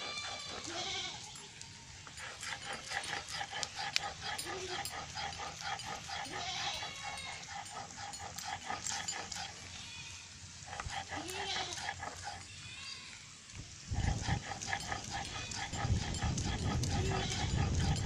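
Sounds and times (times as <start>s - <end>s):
animal high whining call: 0.0s - 1.6s, 4.3s - 8.3s, 14.3s - 18.0s.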